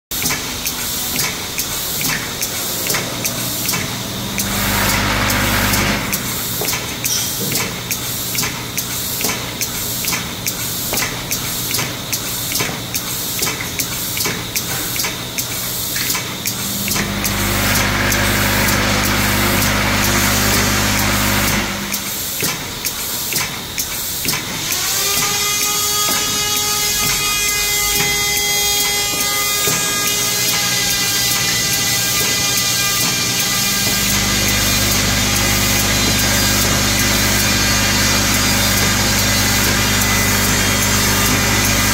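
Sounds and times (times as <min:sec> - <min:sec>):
rising motor whine: 0:02.0 - 0:06.7, 0:16.6 - 0:22.1
electric hum with hiss: 0:15.2 - 0:22.4.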